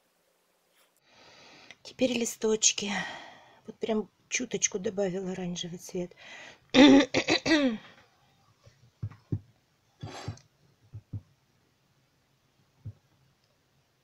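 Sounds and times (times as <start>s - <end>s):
woman coughing: 6.8s - 7.8s
soft low knocks: 10.3s - 11.3s.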